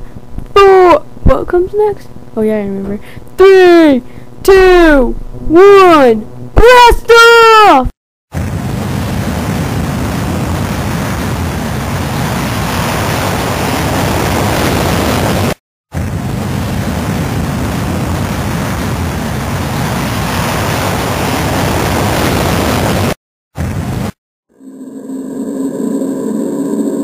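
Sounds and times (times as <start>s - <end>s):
rocket engines roaring: 8.4s - 23.2s.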